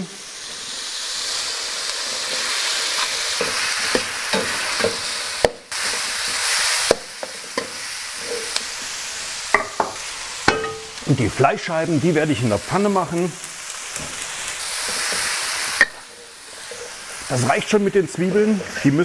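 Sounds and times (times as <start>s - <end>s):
onions sizzling in a wok: 0.0s - 19.0s
metal spatula scraping a wok: 7.2s - 8.6s, 14.0s - 17.2s.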